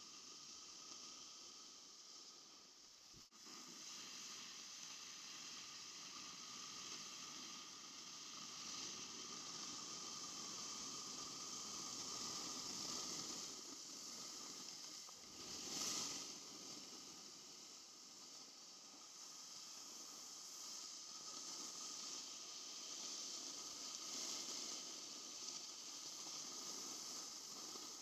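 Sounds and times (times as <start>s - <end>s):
snowboards sliding over snow: 0.0s - 28.0s.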